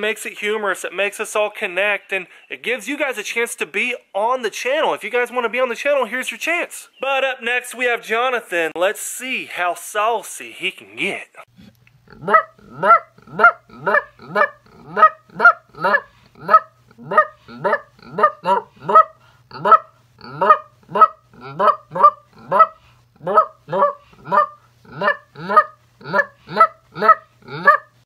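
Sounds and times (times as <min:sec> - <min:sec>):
man making goose-like honks: 0:12.2 - 0:27.9.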